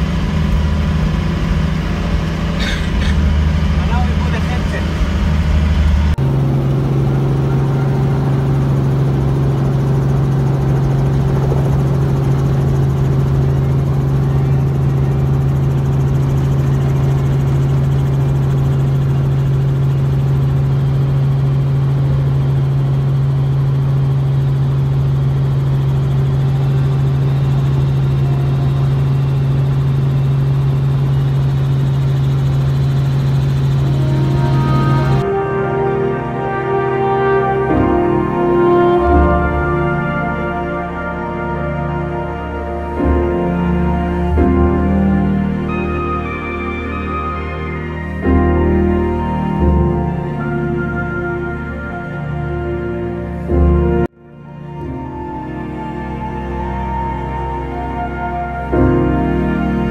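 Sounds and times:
helicopter cabin drone: 0.0s - 59.9s.

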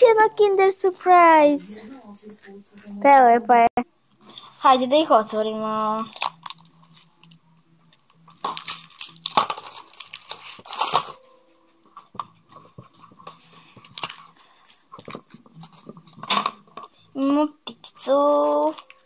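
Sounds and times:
foil wrapper crinkling and tearing: 5.8s - 11.2s, 13.8s - 16.2s
chocolate shell crunching: 6.1s - 11.2s.

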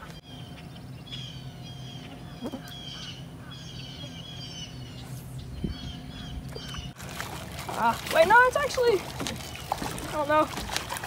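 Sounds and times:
small birds chirping: 0.0s - 7.0s
steady low hum: 0.0s - 11.0s.

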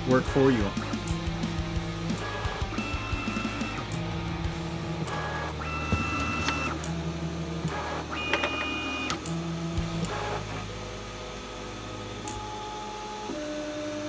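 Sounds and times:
stepper motors whining: 0.0s - 14.0s.

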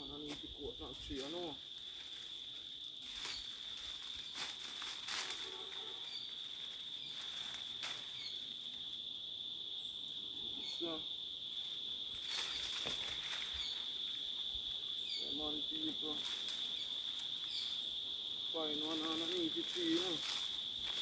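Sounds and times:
high-pitched insect drone: 0.0s - 21.0s
dry brush cracking and rustling: 0.2s - 8.4s, 12.2s - 13.8s, 15.9s - 17.8s, 18.6s - 21.0s.

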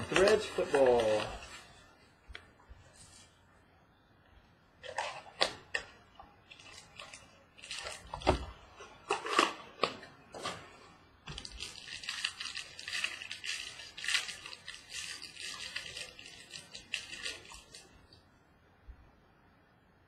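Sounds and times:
wrapper crinkling and tearing: 0.0s - 1.7s, 6.5s - 8.4s, 9.0s - 9.8s, 11.3s - 18.1s.

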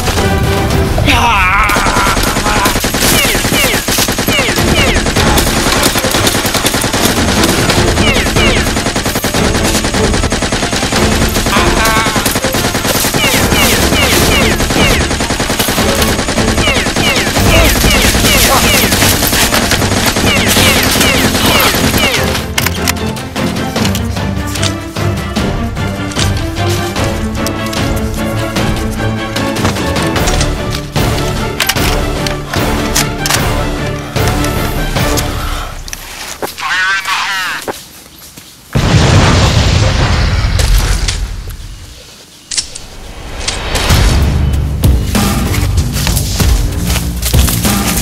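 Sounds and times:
automatic machine-gun fire: 1.8s - 22.3s.

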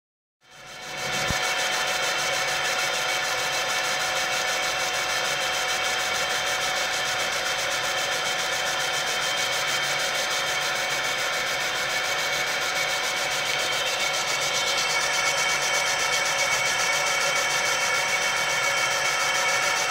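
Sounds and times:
laser engraver buzzing hiss: 0.5s - 19.9s.

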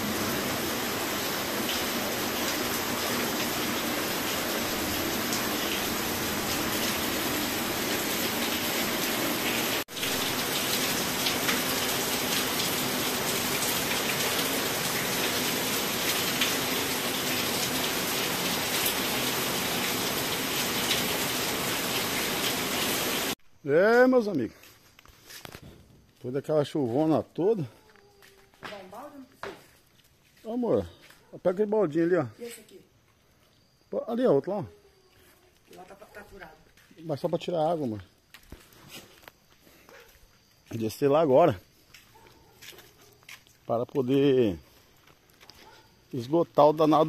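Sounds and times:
heavy rain pouring: 0.0s - 23.4s
water splashing off roof edge: 0.0s - 23.4s.

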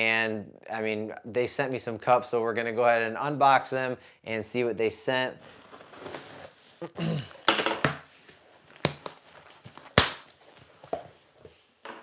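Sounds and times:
cardboard rustling: 5.4s - 6.8s.

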